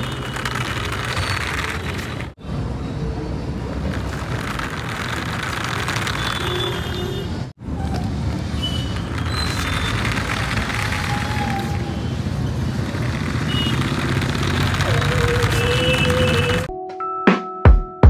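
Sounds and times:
plastic wheels rattling on pavement: 0.0 - 2.4, 3.7 - 7.2, 8.4 - 16.7
toy car motor whirring: 0.0 - 2.4, 3.9 - 7.2, 8.9 - 16.7.

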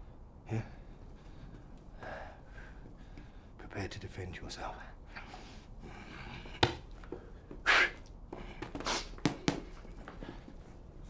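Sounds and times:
blows hitting padded gear: 8.5 - 9.8.

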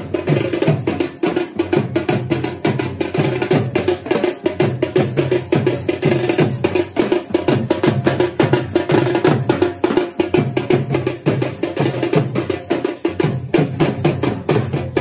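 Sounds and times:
drums beaten with sticks: 0.0 - 15.0.

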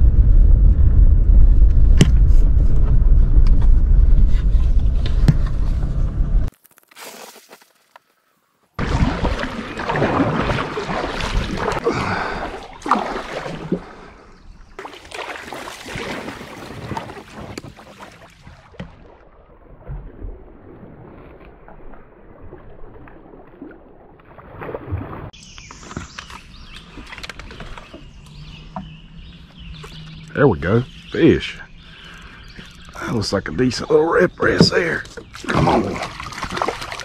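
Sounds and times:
water rushing and splashing: 8.8 - 25.4, 34.4 - 37.0.

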